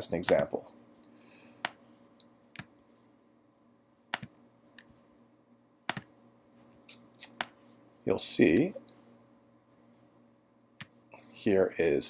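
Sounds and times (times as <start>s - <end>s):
computer mouse clicking: 4.1s - 4.9s, 5.9s - 6.1s.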